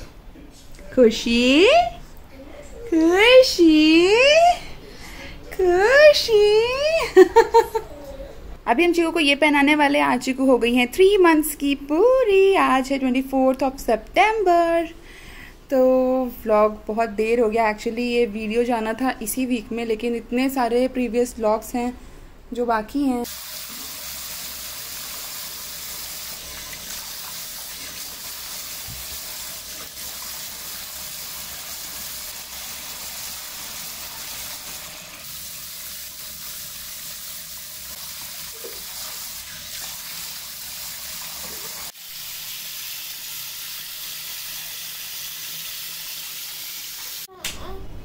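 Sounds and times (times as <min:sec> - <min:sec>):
tap water running into washbasin: 0:23.2 - 0:47.3.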